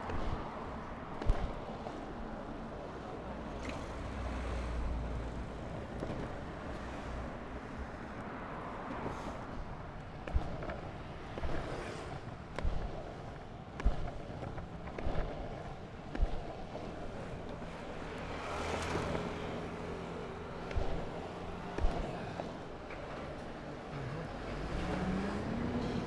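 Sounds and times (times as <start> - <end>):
wheels rolling over asphalt: 5.5 - 26.0.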